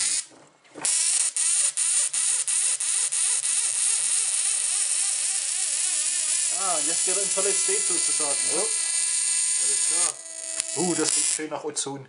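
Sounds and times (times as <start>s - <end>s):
electric sparking hiss: 0.0s - 11.5s.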